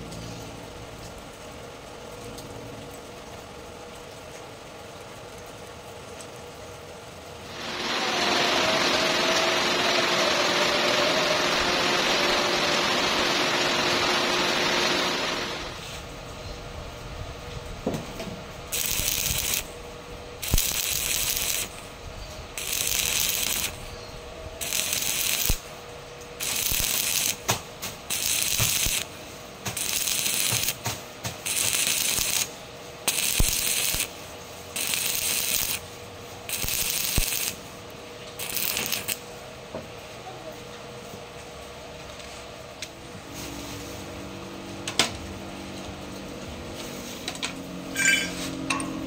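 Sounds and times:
welding arc crackling: 7.4 - 16.0, 18.6 - 39.4
steady loud hiss: 7.4 - 39.4.

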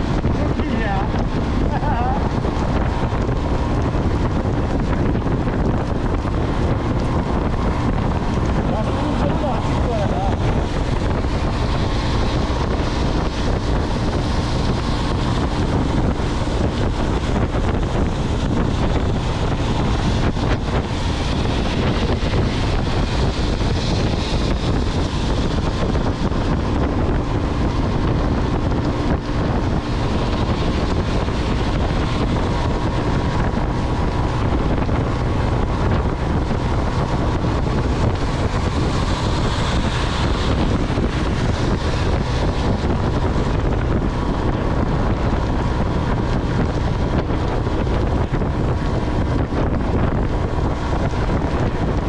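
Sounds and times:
wind buffeting microphone: 0.0 - 52.0
tyres hissing on wet road: 6.5 - 17.3, 18.1 - 26.4, 35.1 - 43.5.

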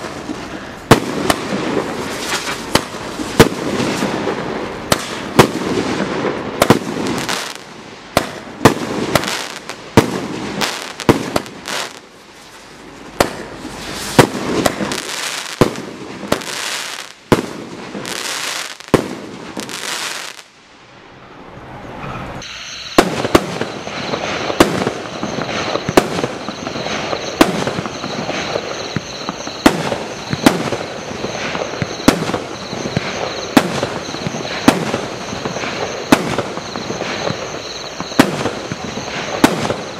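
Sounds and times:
sharp firework reports: 0.0 - 20.5, 22.3 - 39.9
fireworks crackle: 0.0 - 20.6, 22.4 - 39.9
fireworks shots and bursts: 0.0 - 20.6, 22.4 - 39.9
steady high tone: 21.2 - 39.9.

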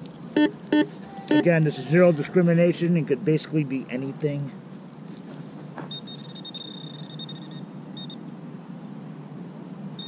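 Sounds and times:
short beep: 0.4 - 1.5
pinpointer high-pitched tone: 0.4 - 1.6.

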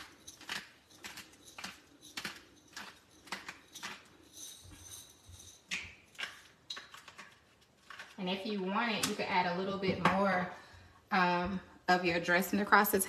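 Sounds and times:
pepper grinder crackling: 0.0 - 4.9, 5.5 - 9.3.

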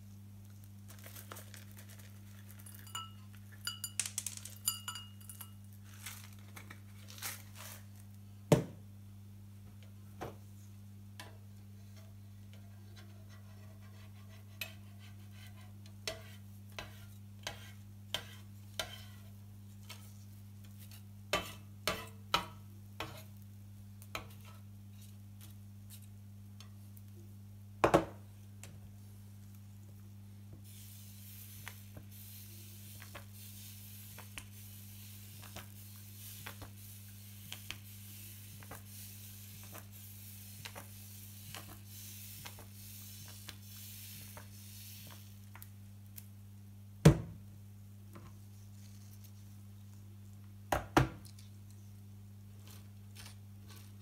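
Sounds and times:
batter sizzling on hot plate: 0.0 - 8.1, 13.4 - 27.1, 30.6 - 46.4
low steady hum: 0.0 - 54.0
spatula scraping a griddle: 11.8 - 23.4, 24.0 - 25.2.

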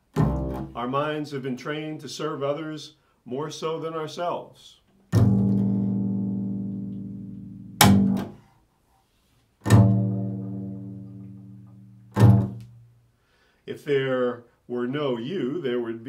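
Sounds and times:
double bass plucked notes: 0.0 - 0.8, 5.1 - 8.4, 9.6 - 13.0.

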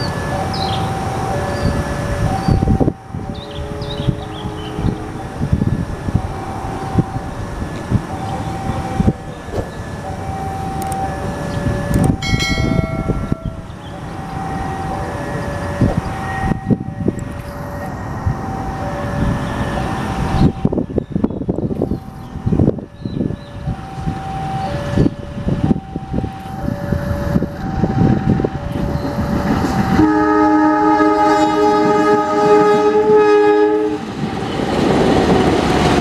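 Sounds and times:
train rumbling: 0.0 - 36.0
brief high-pitched tone: 12.0 - 17.9
repeating two-note tone: 12.0 - 17.9.

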